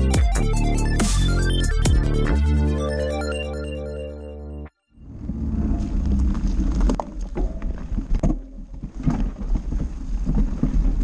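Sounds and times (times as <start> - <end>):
wind rumbling on microphone: 5.0 - 11.0
bike rattling: 5.1 - 11.0.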